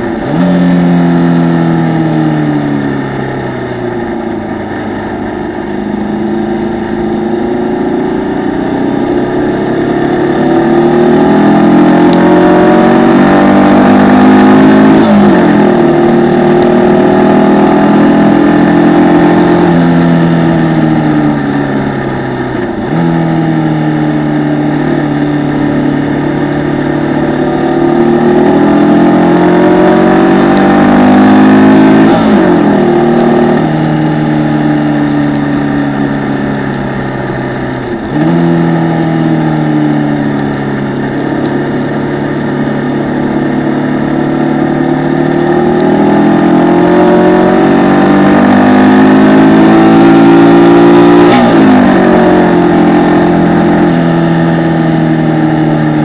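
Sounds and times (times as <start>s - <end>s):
gear change: 0.0s - 56.0s
racing engine revving: 0.0s - 56.0s.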